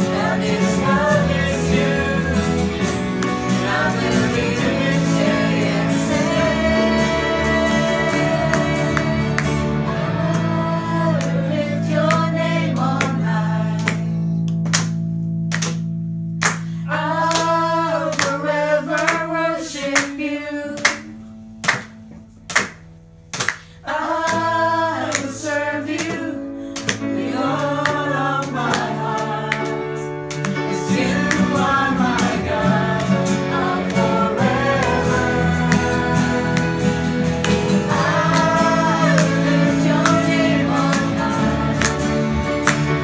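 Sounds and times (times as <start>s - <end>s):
voices singing together: 0.0s - 14.2s, 16.8s - 21.1s, 23.8s - 43.0s.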